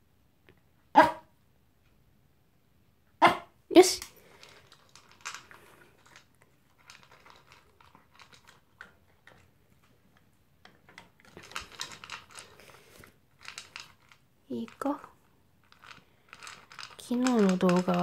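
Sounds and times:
dog crunching food: 4.3 - 15.0, 15.6 - 18.0.

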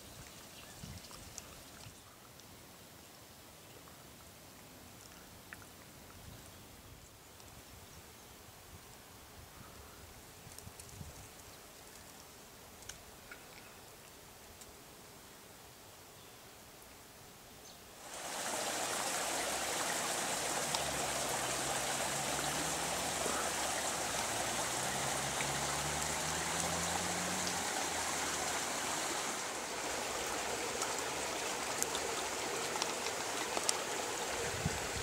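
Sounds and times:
brook water trickling: 0.0 - 7.6, 17.8 - 35.0.

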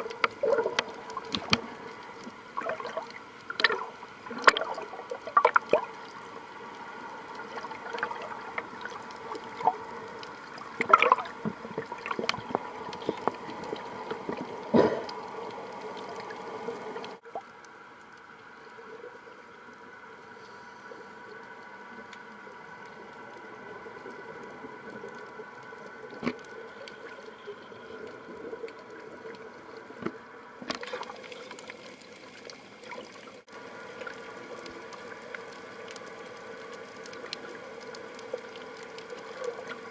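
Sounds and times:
water sloshing underwater: 0.0 - 39.9
sharp pops and splashes: 30.0 - 31.8.

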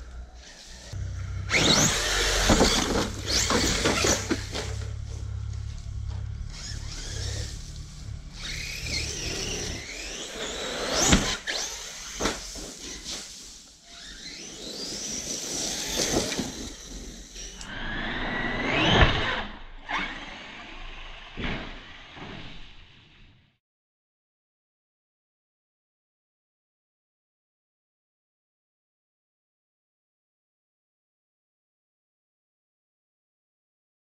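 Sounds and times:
electric motor whining: 0.0 - 22.2
loud thumps: 1.5 - 7.7.

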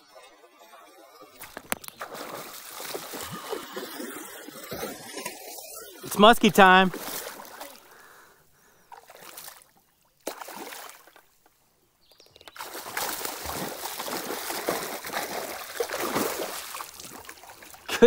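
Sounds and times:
fish splashing at water surface: 1.4 - 6.1, 6.9 - 8.0, 8.9 - 11.2, 12.5 - 17.9.

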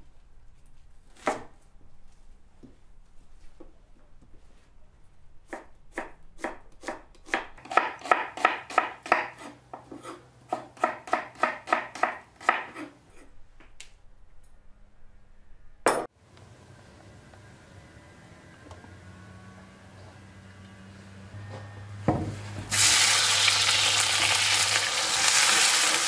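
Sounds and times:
knife chopping on wooden board: 5.5 - 12.9
knock on cutting board: 22.1 - 22.3.

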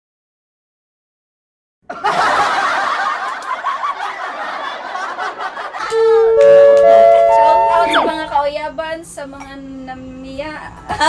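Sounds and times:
group of people laughing: 1.9 - 7.5
music: 5.9 - 8.4.

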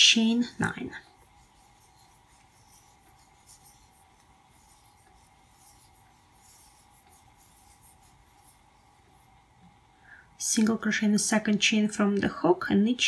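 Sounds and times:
yarn rustling over crochet hook: 0.0 - 9.7.

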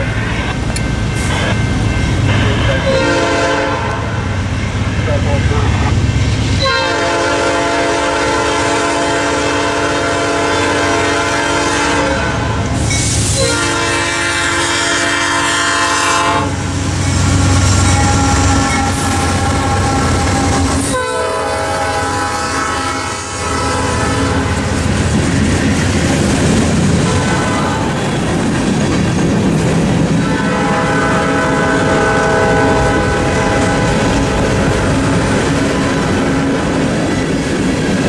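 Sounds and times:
locomotive horn blasts: 2.3 - 4.3, 6.6 - 12.7, 13.4 - 16.7, 17.3 - 24.6, 27.0 - 28.1, 30.2 - 36.6.

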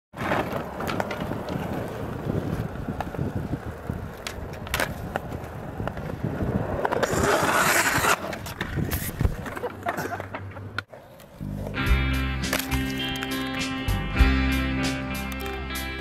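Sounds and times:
skateboard wheels rolling on concrete: 0.1 - 16.0
skateboard clacks: 0.2 - 11.4.

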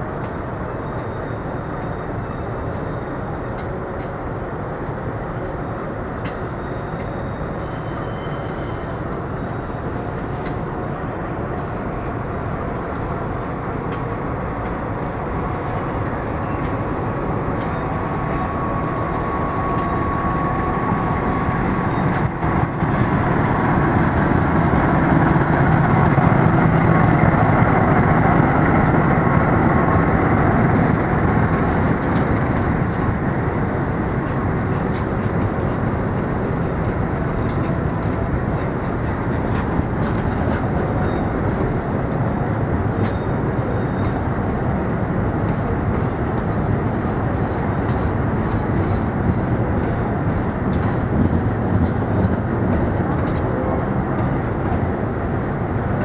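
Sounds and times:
diesel locomotive passing: 0.0 - 56.0
train coaches rumbling past: 0.0 - 56.0
wheels clicking on rails: 15.8 - 56.0.

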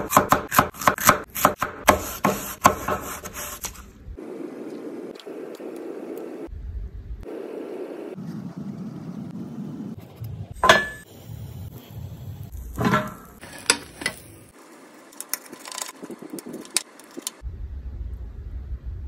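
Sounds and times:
metallic knocks with ring: 10.6 - 11.0.

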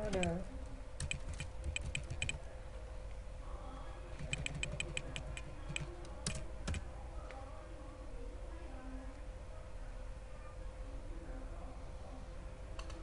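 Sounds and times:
keyboard typing: 0.0 - 0.4, 1.0 - 2.4, 4.2 - 6.9
faint steady hum: 0.0 - 13.0.

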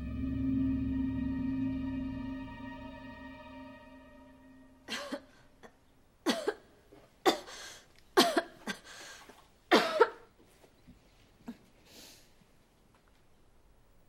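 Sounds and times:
woman coughing: 4.9 - 5.3, 6.3 - 6.6, 7.3 - 7.6, 8.2 - 8.9, 9.7 - 10.3.

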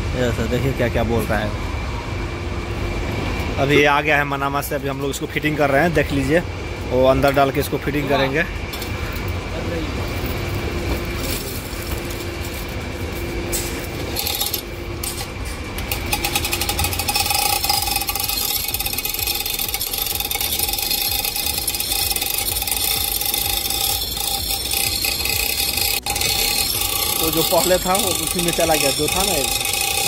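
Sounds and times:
constant mechanical whine: 0.0 - 30.0
machinery low hum: 0.0 - 30.0
fast mechanical rattle: 13.8 - 30.0.

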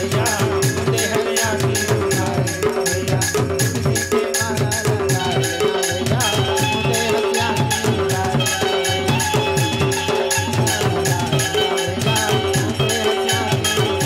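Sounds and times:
fast drum beat: 0.0 - 14.0
light rattling percussion: 0.0 - 14.0
reedy keyboard melody: 5.1 - 14.0.

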